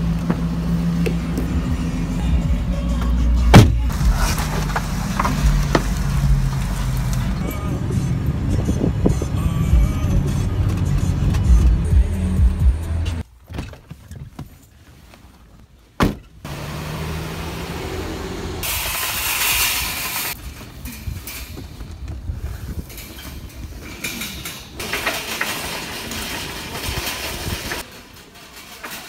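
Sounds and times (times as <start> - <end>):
shopping cart rattling on asphalt: 3.9 - 7.8, 18.6 - 29.0.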